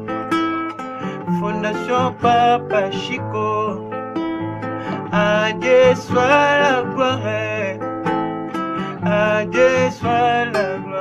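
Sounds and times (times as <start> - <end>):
acoustic guitar: 0.0 - 11.0
person singing: 1.0 - 3.9, 4.9 - 7.8, 8.8 - 11.0.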